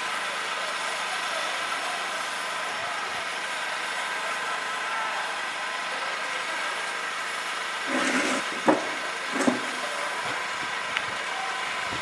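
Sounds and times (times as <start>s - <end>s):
distant shouts: 1.2s - 6.6s, 7.8s - 12.0s.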